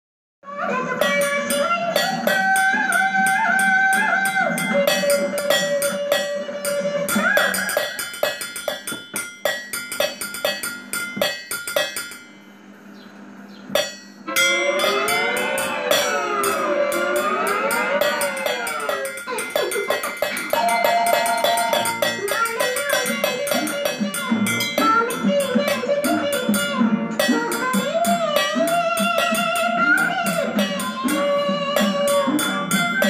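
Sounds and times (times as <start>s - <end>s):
sticks drumming on metal pot: 1.0s - 12.3s, 13.8s - 33.0s
melody: 13.8s - 29.0s.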